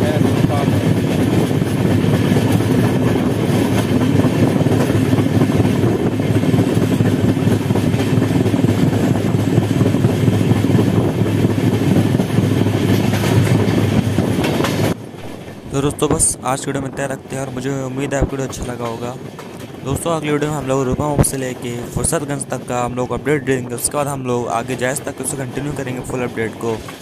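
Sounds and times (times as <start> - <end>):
rushing air: 0.0 - 18.3
train wheels rumbling on track: 0.0 - 27.0.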